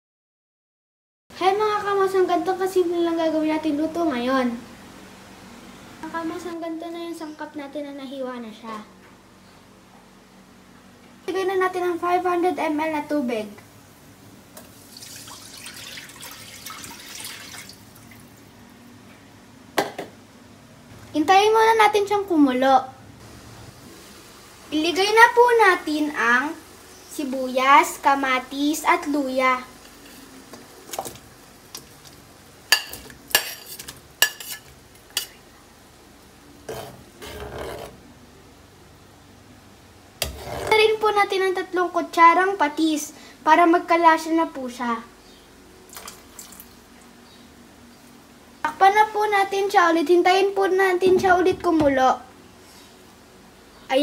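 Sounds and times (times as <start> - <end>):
water pouring into a wok: 14.7 - 18.5, 45.9 - 46.7
spatula stirring vegetables in water: 29.7 - 35.4
utensil scraping a plate: 32.8 - 35.4, 36.7 - 38.0, 40.2 - 40.8.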